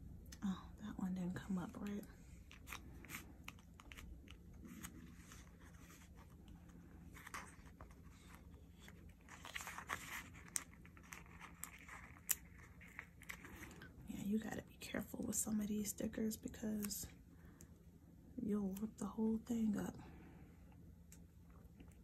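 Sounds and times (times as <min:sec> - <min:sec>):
paper sticker sheet crinkling: 0:02.4 - 0:13.8.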